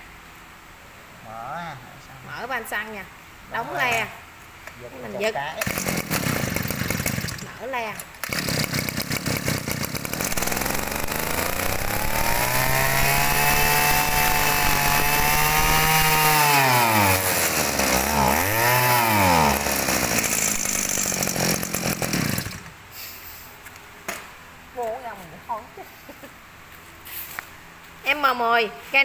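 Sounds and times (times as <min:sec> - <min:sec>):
two-stroke engine revving: 0:05.6 - 0:07.5, 0:08.2 - 0:22.8.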